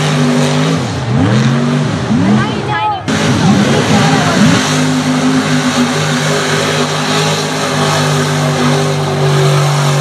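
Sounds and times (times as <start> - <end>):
truck engine revving high: 0.0 - 10.0.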